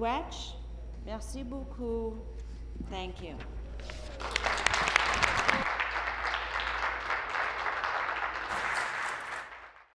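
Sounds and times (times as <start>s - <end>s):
crowd applauding: 4.0s - 9.9s.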